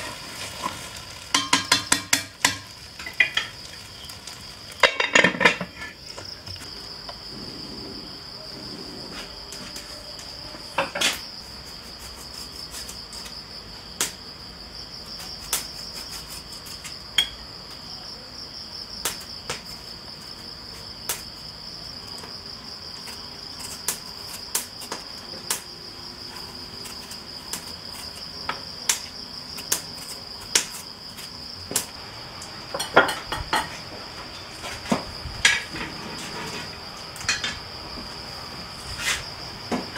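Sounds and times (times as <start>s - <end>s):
utensils clinking against pots: 0.0s - 3.9s, 4.8s - 6.0s
crickets chirring: 0.0s - 39.9s.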